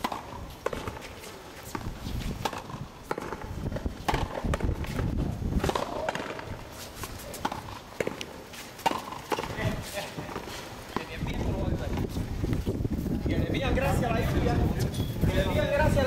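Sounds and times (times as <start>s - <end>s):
rubber ball struck by rackets: 1.7s - 6.6s.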